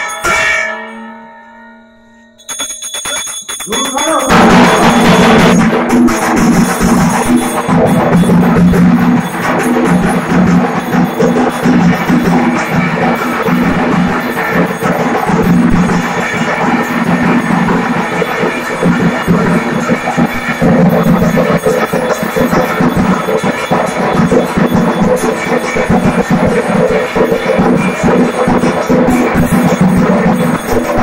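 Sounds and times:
bell ringing: 0:00.0 - 0:31.0
bells clanging: 0:00.0 - 0:31.0
drums beating: 0:02.3 - 0:31.0
voices: 0:03.6 - 0:05.6.

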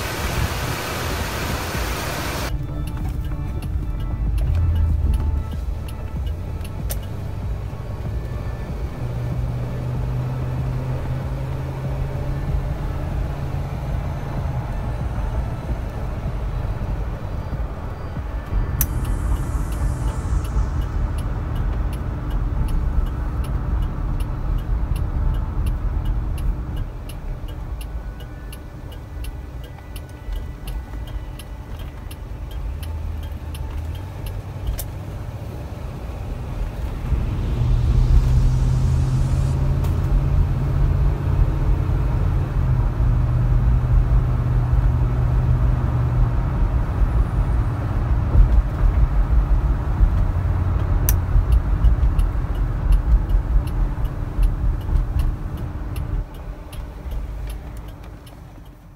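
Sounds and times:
car engine and road rumble: 0:00.0 - 0:58.9
light regular ticking: 0:02.5 - 0:35.6, 0:48.1 - 0:58.9.

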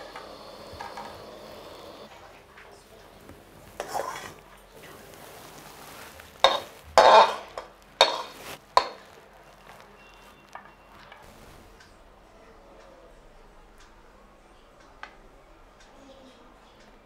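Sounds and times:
spatula scraping and knocking pan: 0:03.8 - 0:04.4, 0:06.4 - 0:09.2.

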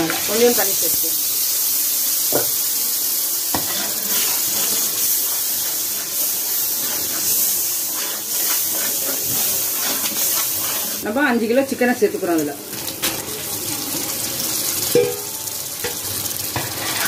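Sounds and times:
masala sizzling in a pot: 0:00.0 - 0:17.0.

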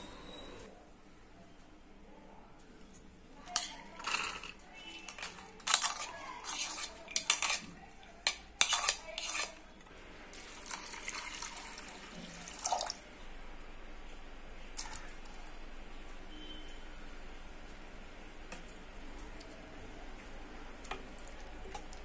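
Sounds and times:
lentils rattling into metal pot: 0:03.5 - 0:07.7
water pouring into a pot: 0:10.3 - 0:13.0.

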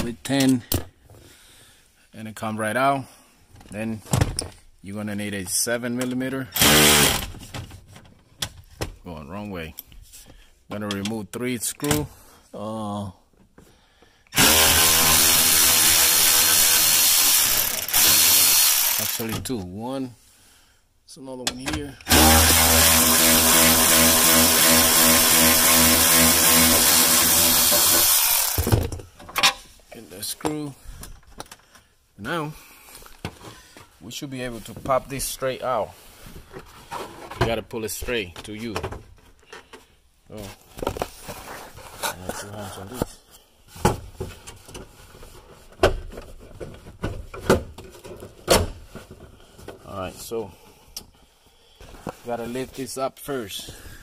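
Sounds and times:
power tool motor humming: 0:06.6 - 0:07.2, 0:14.4 - 0:19.2, 0:22.1 - 0:28.7.

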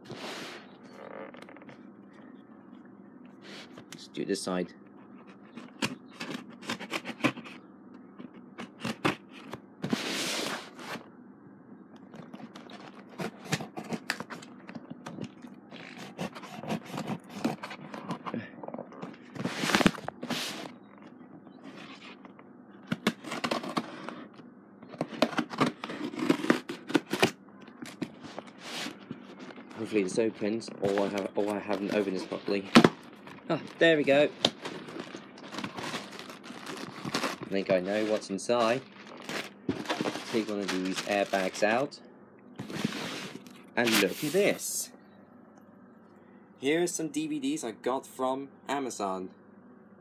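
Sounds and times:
scissors cutting cardboard: 0:05.5 - 0:07.6, 0:13.1 - 0:14.4, 0:15.8 - 0:18.2, 0:22.9 - 0:24.2, 0:25.0 - 0:27.3.

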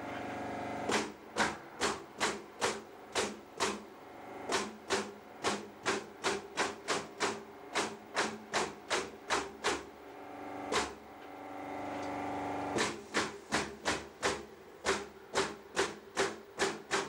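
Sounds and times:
nail gun firing: 0:00.9 - 0:03.9, 0:04.5 - 0:09.9, 0:10.7 - 0:11.0, 0:12.8 - 0:17.0.

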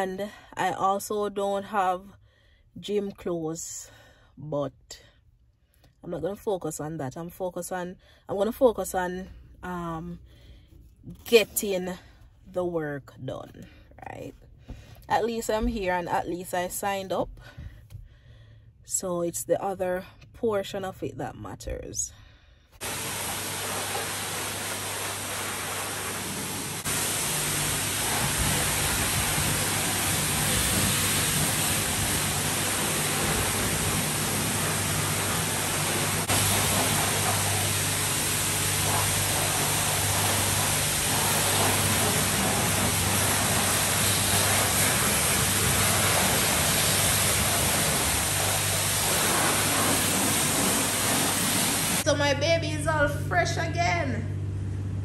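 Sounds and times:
car wash rushing noise: 0:22.8 - 0:52.0
low steady hum: 0:51.9 - 0:55.0.

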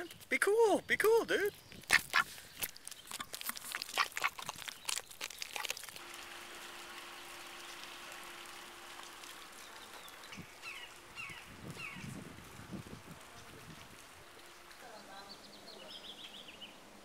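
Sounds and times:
sharp clicks and crackles: 0:01.8 - 0:14.9
low hum: 0:06.0 - 0:17.0
outdoor hiss: 0:06.0 - 0:17.0.

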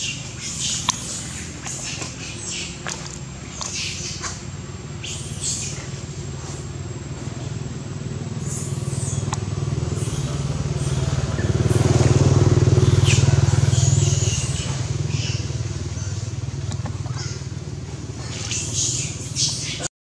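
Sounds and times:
engine pulsing drone: 0:00.0 - 0:19.9.

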